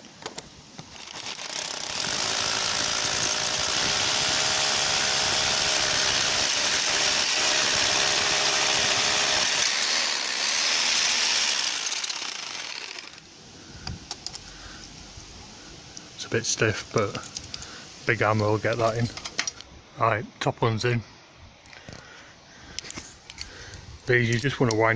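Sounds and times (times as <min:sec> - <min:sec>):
hammer drill boring into brick: 0:00.9 - 0:13.2.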